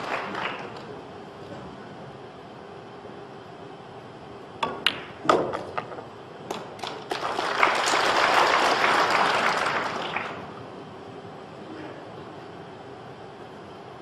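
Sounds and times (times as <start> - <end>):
audience applauding: 0.0 - 1.0, 6.8 - 10.6
cue tip striking ball: 4.6 - 7.1
pool balls clicking: 4.6 - 7.3.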